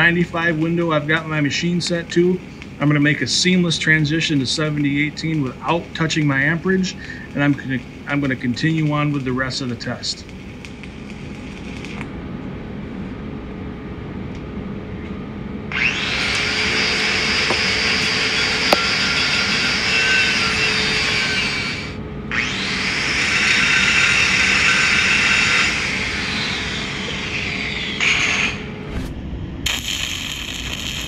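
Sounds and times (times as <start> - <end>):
angle grinder grinding steel: 15.7 - 28.8.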